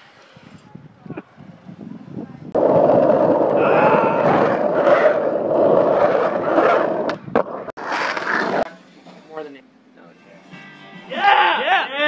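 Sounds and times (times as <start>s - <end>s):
skateboard wheels rolling on asphalt: 1.5s - 8.7s.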